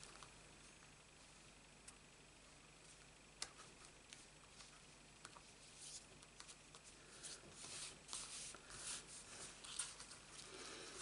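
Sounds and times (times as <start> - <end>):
card stock rustling and scraping: 4.1 - 11.0.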